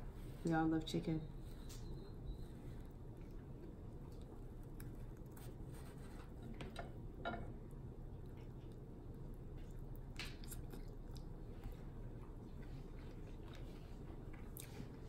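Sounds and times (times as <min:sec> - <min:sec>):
steady low hum: 0:00.0 - 0:15.0
person chewing chicken wings: 0:08.1 - 0:15.0
wet smacks: 0:10.1 - 0:11.3.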